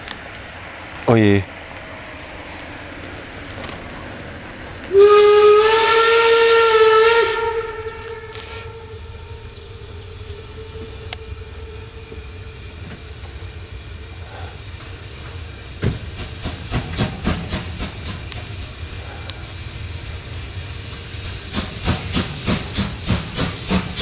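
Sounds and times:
steam train rumble and hiss: 0.0s - 24.0s
steam locomotive whistle: 4.9s - 13.0s.

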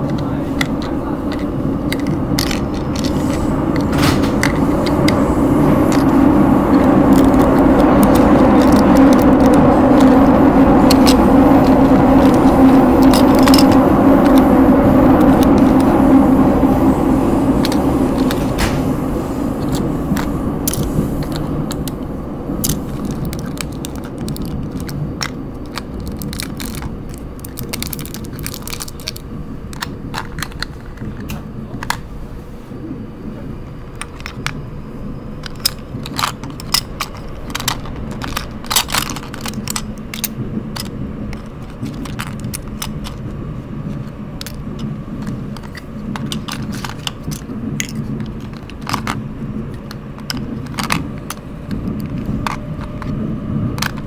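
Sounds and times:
plastic toys clicking and clattering: 0.0s - 16.0s, 17.5s - 18.9s, 19.6s - 32.1s, 33.6s - 34.6s, 35.4s - 54.0s
subway train rumbling: 0.0s - 54.0s.

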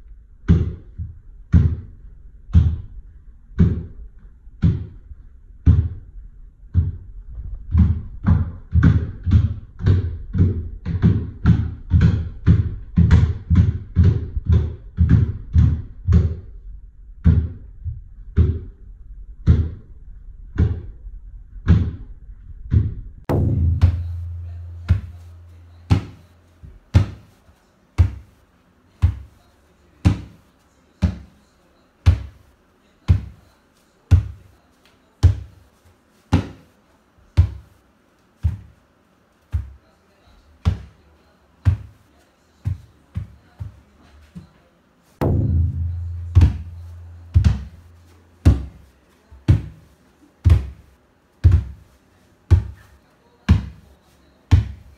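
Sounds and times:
low hum: 22.2s - 26.6s, 45.2s - 48.4s
percussive thumping beat: 23.3s - 26.4s, 45.2s - 48.9s.

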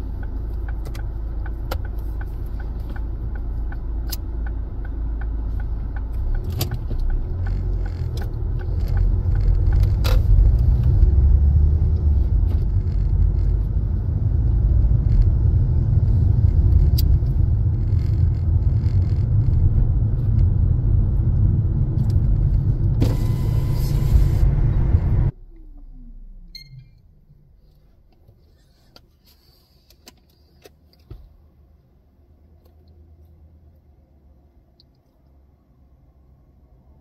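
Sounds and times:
loud low rumble: 8.3s - 27.5s.

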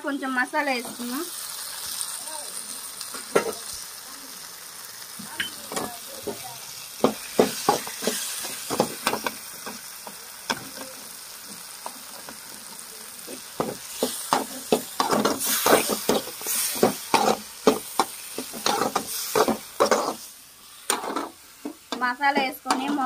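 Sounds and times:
light sizzle: 0.0s - 23.0s
metal spatula scraping a pan: 13.3s - 21.4s.

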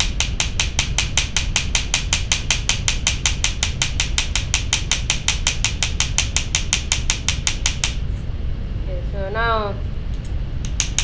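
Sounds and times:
hammer tapping metal rivet: 0.0s - 8.0s, 10.7s - 11.0s.

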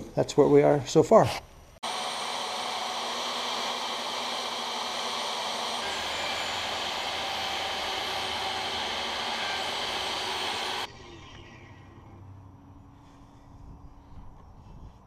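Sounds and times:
table saw ripping wood: 1.8s - 10.9s.

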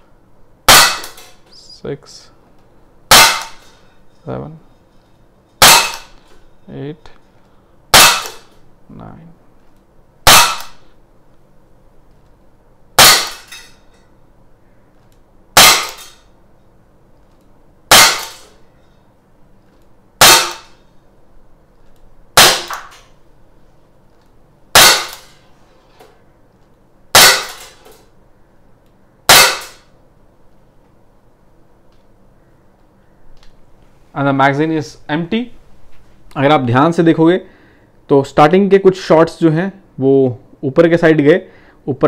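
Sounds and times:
air pistol shots echoing: 0.7s - 1.3s, 3.1s - 3.8s, 5.6s - 6.2s, 7.9s - 8.6s, 10.2s - 11.0s, 13.0s - 13.5s, 15.6s - 16.2s, 17.9s - 18.6s, 20.2s - 20.8s, 22.4s - 23.0s, 24.7s - 25.4s, 27.1s - 28.0s, 29.2s - 29.9s.

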